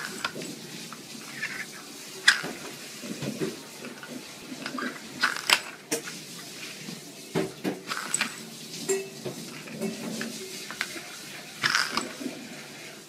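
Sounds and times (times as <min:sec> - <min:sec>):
plastic lids clacking on wooden floor: 0:01.3 - 0:06.1, 0:09.3 - 0:12.4.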